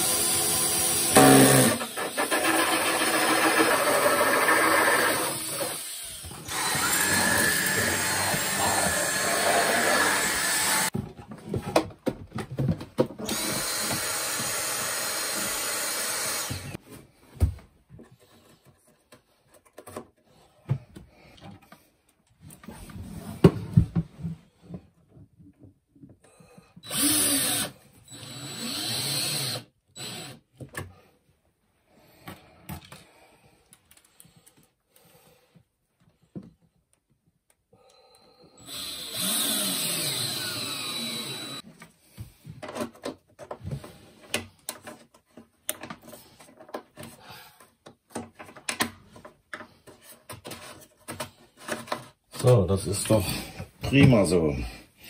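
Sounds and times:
power drill running: 0.0 - 10.9, 13.2 - 16.8, 26.8 - 30.4, 38.6 - 41.6.

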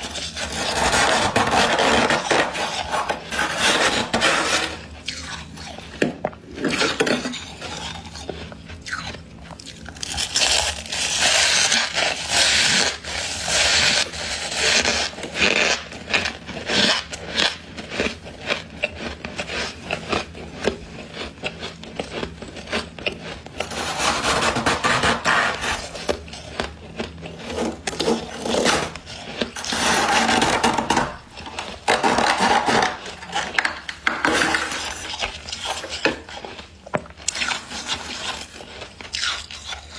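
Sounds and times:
frost being scraped: 0.0 - 5.9, 10.0 - 21.3, 22.0 - 39.9
chewing crisp frost: 4.8 - 24.1, 25.5 - 29.8, 34.7 - 39.9.

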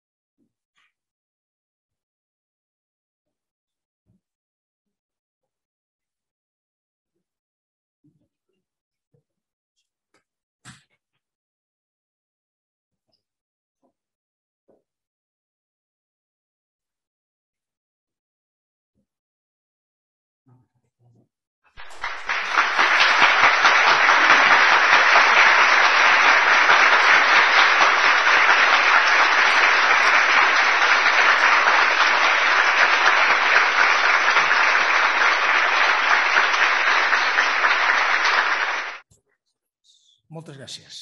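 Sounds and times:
audience applauding: 21.8 - 39.0.

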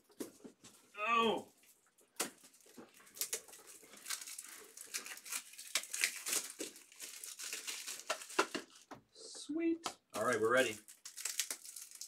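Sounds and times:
plastic wrapping crinkling: 1.5 - 8.9, 10.1 - 12.0.

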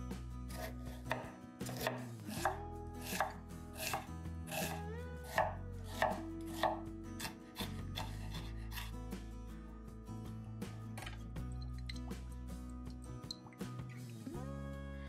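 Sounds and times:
knife chopping on cutting board: 0.5 - 8.9.

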